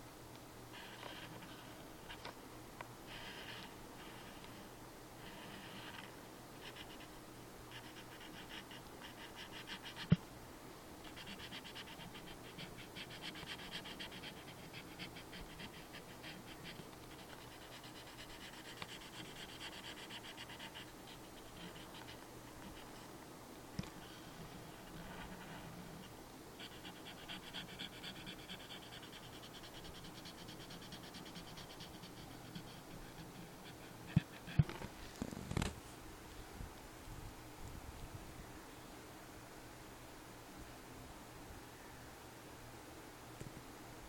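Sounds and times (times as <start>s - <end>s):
marker scratching on paper: 5.2s - 6.0s.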